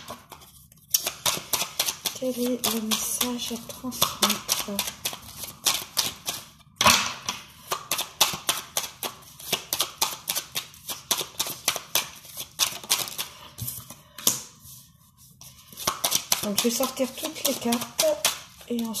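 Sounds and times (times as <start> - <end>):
cards shuffling clicks: 0.3 - 6.4, 7.3 - 13.4, 15.6 - 18.4.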